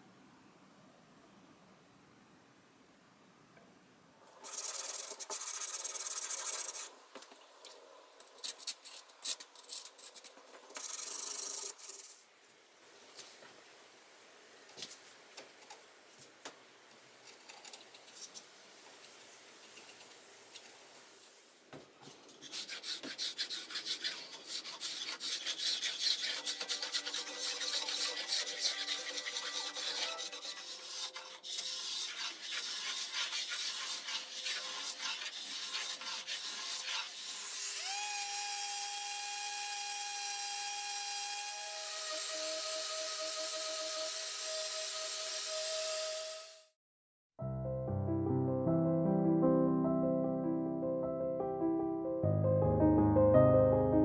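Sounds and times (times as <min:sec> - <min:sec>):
faint scratches on wood: 0:22.0 - 0:37.4
scraper rasping over wood: 0:22.4 - 0:37.9.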